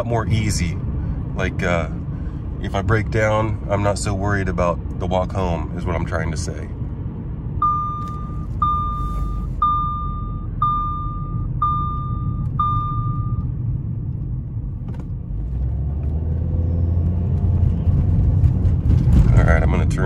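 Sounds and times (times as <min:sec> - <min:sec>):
car engine and road rumble: 0:00.0 - 0:20.0
electronic beeps: 0:07.6 - 0:13.5.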